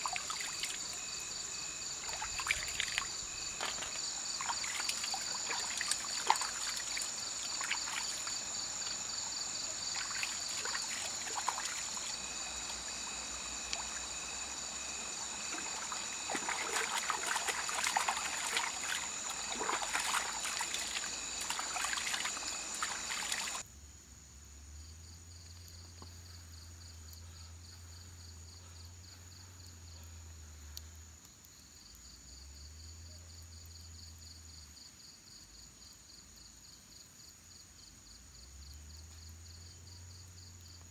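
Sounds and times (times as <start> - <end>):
hands splashing in water: 0.0 - 1.1, 2.0 - 9.0, 9.8 - 12.2, 15.2 - 23.6
insects chirring: 0.0 - 23.6
water trickling: 0.0 - 23.6.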